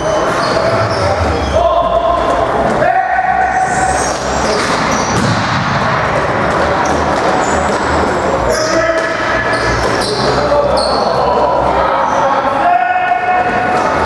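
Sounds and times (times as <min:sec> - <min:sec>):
sneaker squeaks: 0:00.0 - 0:01.9, 0:03.5 - 0:05.4, 0:06.8 - 0:11.3
players shouting: 0:00.0 - 0:14.0.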